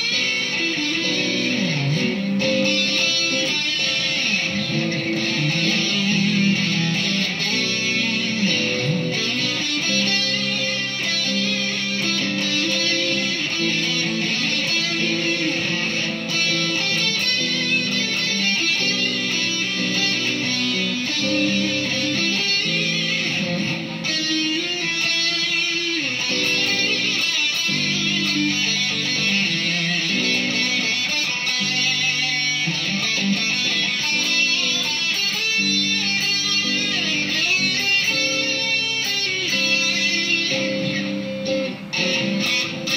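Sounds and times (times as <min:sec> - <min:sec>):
distorted electric guitar: 0:00.0 - 0:42.9.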